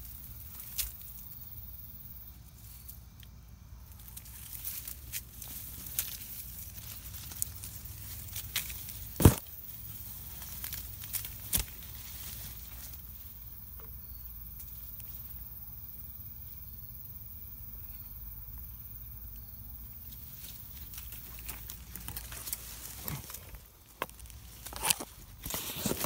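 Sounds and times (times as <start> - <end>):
leaves and twigs rustling: 0.0 - 26.0
low rumble of handling and wind: 0.0 - 26.0
sharp cracks of twigs: 0.1 - 1.3, 2.6 - 13.8, 20.3 - 26.0.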